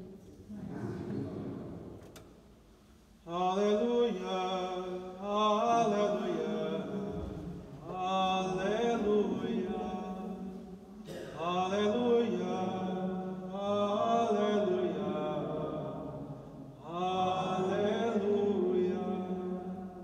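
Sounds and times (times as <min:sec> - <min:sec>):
man singing chant: 0:03.3 - 0:20.0.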